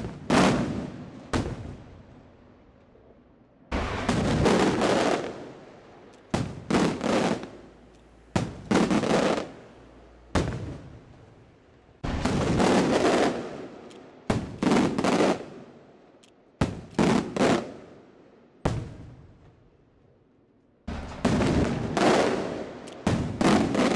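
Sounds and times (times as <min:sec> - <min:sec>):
fireworks bursting with loud bangs: 0:00.0 - 0:02.1, 0:03.7 - 0:09.7, 0:10.3 - 0:11.3, 0:12.0 - 0:15.8, 0:16.6 - 0:18.0, 0:18.6 - 0:19.6, 0:20.9 - 0:23.9.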